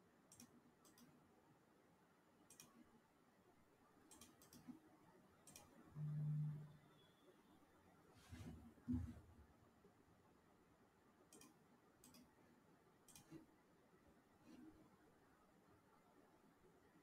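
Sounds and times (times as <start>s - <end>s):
faint computer mouse clicks: 0.3s - 1.2s, 2.5s - 2.8s, 4.1s - 4.8s, 5.4s - 5.8s, 11.3s - 12.3s, 13.1s - 13.5s.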